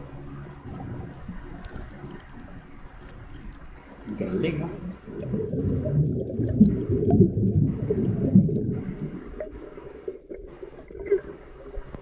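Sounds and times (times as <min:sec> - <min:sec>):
underwater rumble and gurgling: 0:00.0 - 0:12.0.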